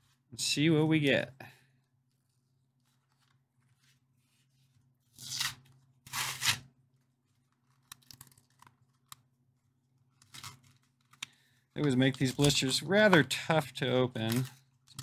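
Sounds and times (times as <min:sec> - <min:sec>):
cardboard tearing: 0:05.1 - 0:06.7
crinkling and clicking of plastic: 0:06.9 - 0:15.0.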